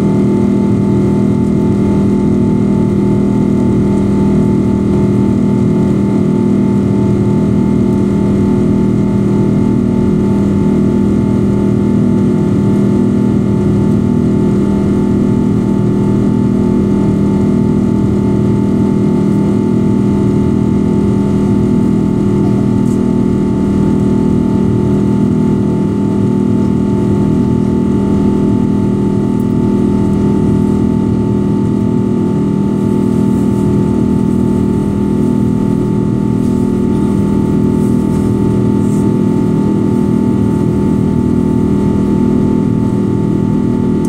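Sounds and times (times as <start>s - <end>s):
airliner engines droning: 0.0s - 44.0s
low cabin hum: 0.0s - 44.0s.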